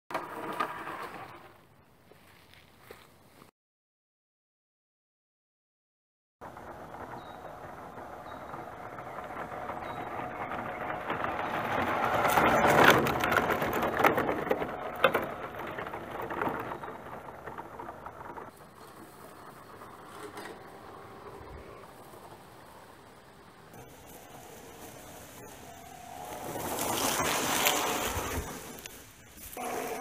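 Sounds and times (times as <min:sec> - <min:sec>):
tyres crunching and knocking: 0:06.4 - 0:30.0
rc car motor whining: 0:18.5 - 0:30.0.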